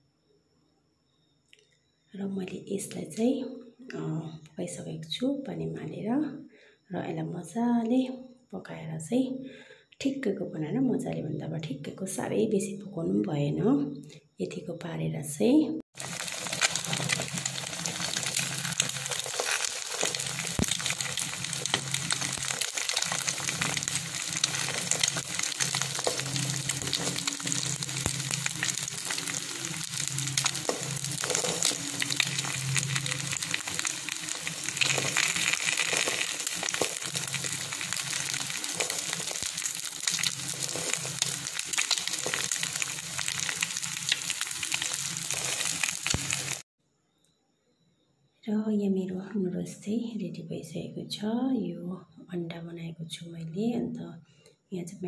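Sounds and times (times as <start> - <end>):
eggs frying in oil: 15.9 - 46.7.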